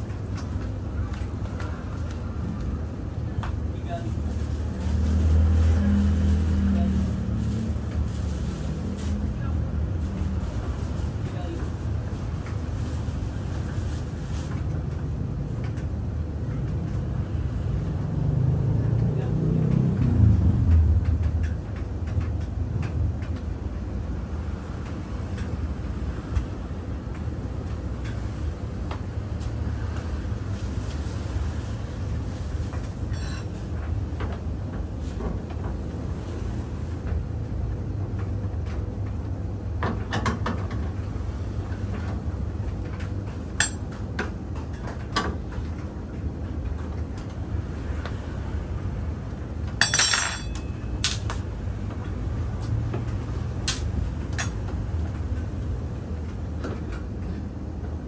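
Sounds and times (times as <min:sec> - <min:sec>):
metal clatter: 0:43.6 - 0:43.8, 0:49.8 - 0:51.2
metal clicks and clinks: 0:49.8 - 0:51.2.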